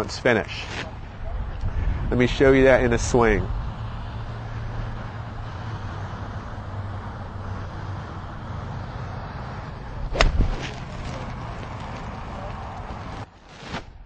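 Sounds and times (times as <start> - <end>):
golf club strike: 10.1 - 10.8.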